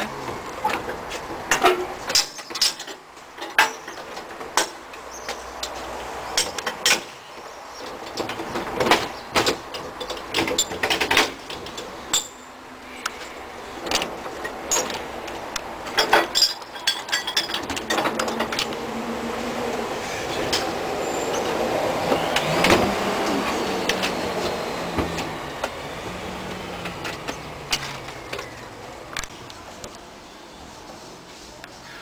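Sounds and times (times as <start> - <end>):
train wheels running on track: 13.1 - 29.9
metallic clanks from train coupling: 15.9 - 18.8.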